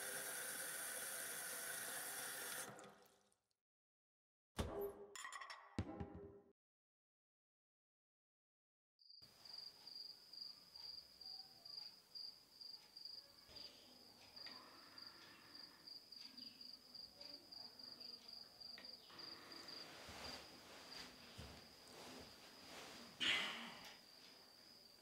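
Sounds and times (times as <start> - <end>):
crickets chirping: 9.1 - 25.0
bedding rustling: 19.8 - 23.2.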